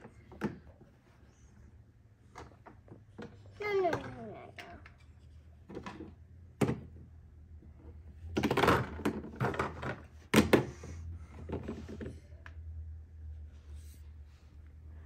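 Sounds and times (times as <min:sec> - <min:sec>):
plastic toys clattering: 0:02.3 - 0:06.9, 0:08.2 - 0:12.2.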